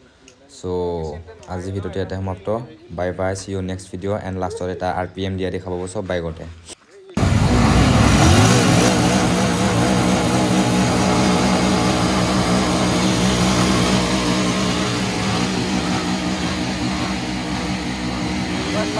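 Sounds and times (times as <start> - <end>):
motorcycle engine revving: 7.2 - 18.9.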